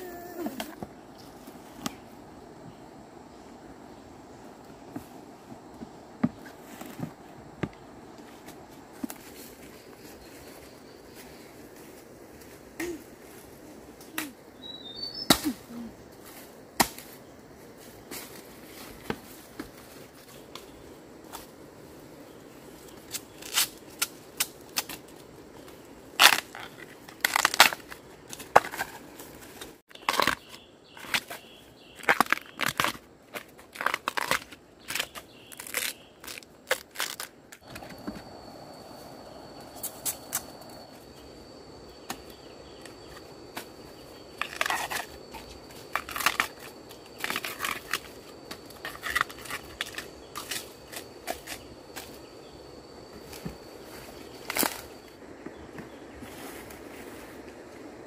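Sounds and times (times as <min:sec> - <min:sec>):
husks crackling as peeled: 0:26.2 - 0:29.0, 0:32.0 - 0:37.7, 0:44.4 - 0:48.2.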